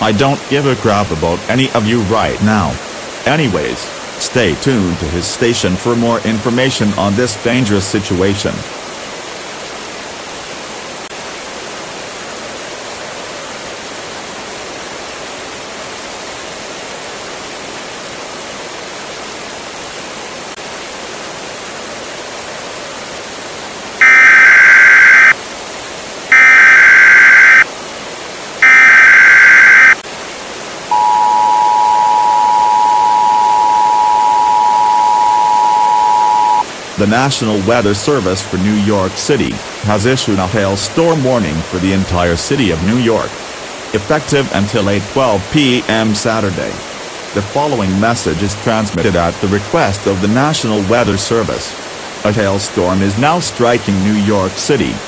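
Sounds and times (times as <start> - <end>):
static hiss: 0.0 - 9.5, 20.0 - 55.0
data burst tones: 24.0 - 25.4, 26.3 - 27.6, 28.6 - 30.0, 30.9 - 36.6
two-tone attention signal: 24.0 - 25.4, 26.3 - 27.6, 28.6 - 30.0, 30.9 - 36.6.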